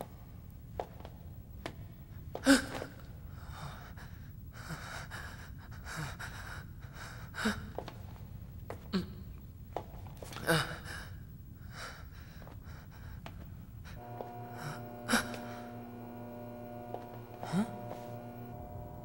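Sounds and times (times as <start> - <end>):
person gasping breaths: 10.4 - 15.8
steady hum: 11.1 - 19.0.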